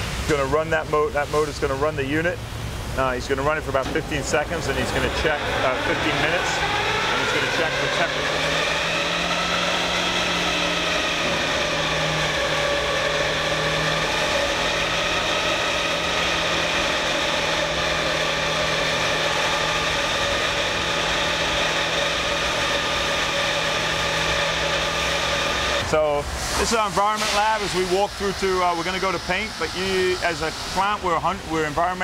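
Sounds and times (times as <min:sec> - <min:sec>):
mower cutting discs whining: 0:03.2 - 0:25.9.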